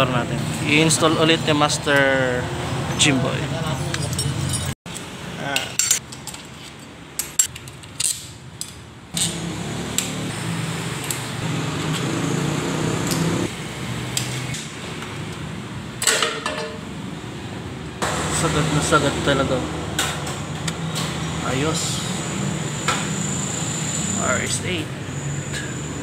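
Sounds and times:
metal parts clinking: 3.9 - 4.8.

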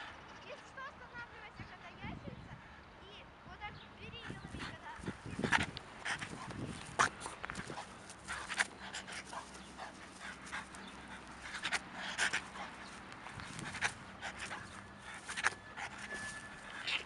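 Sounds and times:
dog panting: 4.0 - 17.0.

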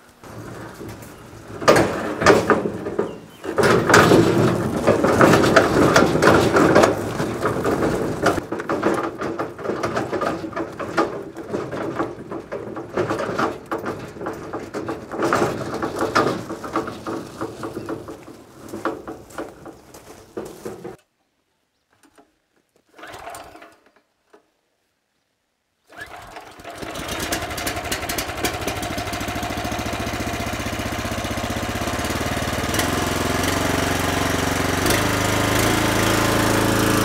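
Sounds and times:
hand truck rattling over gravel: 0.0 - 21.0, 25.9 - 37.0
hand truck rolling over concrete: 0.0 - 21.0, 25.9 - 37.0
footsteps on gravel: 11.3 - 21.0.

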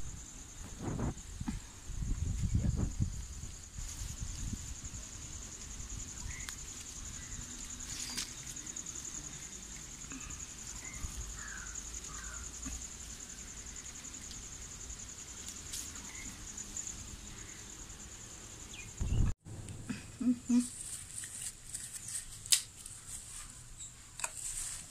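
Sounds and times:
wind rumble on microphone: 0.0 - 6.5, 19.0 - 19.4
insect chirring: 0.0 - 19.4.

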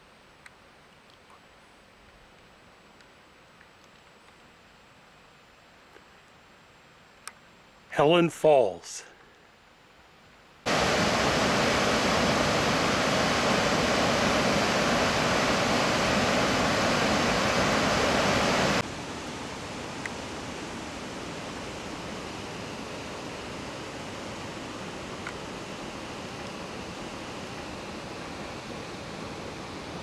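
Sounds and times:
quiet steady hiss: 0.0 - 30.0
waterfall rushing over rocks: 10.7 - 30.0.

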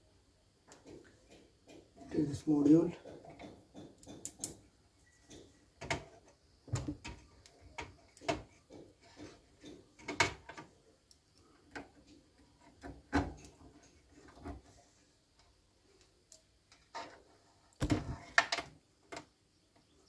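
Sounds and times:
clicks and knocks from handling: 3.0 - 10.7.

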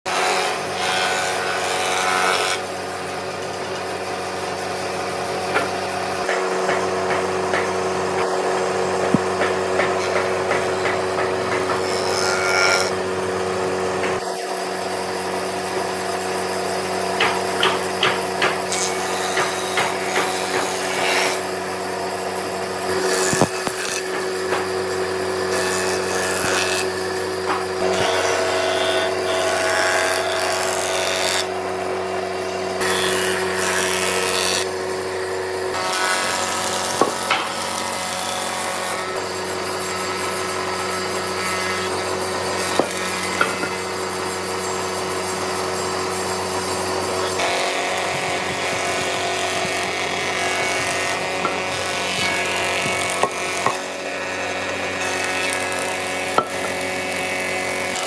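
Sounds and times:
steady machine hum: 0.1 - 58.0
rasping strokes on wood: 17.2 - 21.6, 25.5 - 31.5, 47.0 - 54.4.

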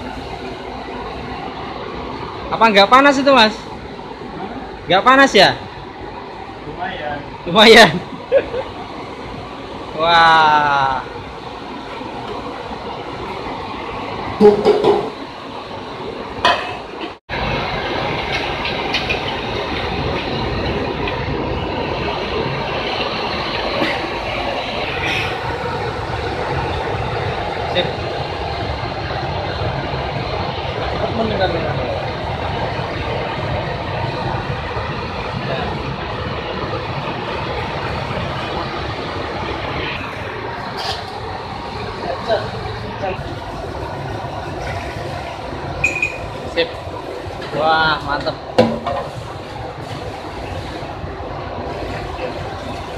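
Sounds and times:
gas burner rushing: 0.0 - 52.9
metal pot knock: 14.4 - 15.1.

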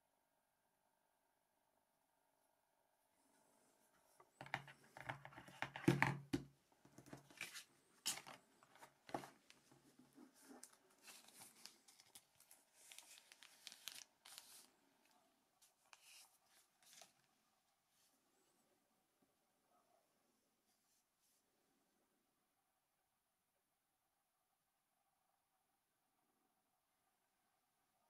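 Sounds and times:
plastic packaging crinkling: 10.4 - 14.7.

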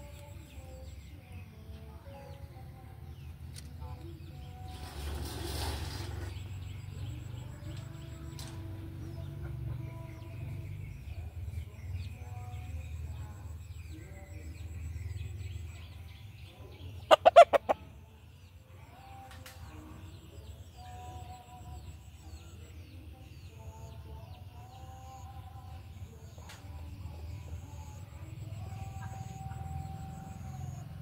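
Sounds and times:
chickens clucking: 17.0 - 17.9
rooster and hens calling loudly: 17.1 - 17.9.

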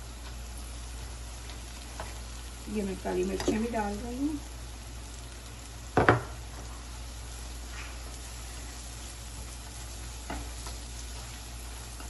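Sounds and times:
onions sizzling in hot oil: 0.0 - 12.0
spatula scraping and tapping pan: 10.2 - 10.8.

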